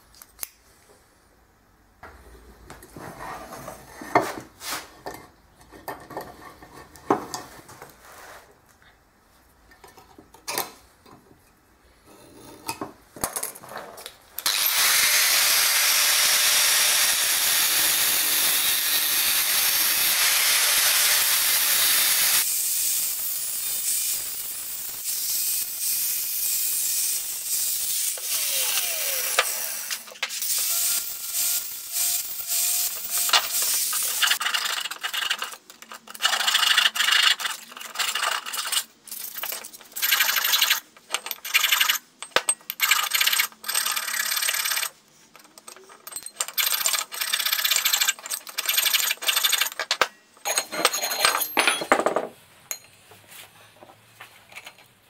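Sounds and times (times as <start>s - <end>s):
angle grinder cutting steel tube: 14.5s - 34.4s.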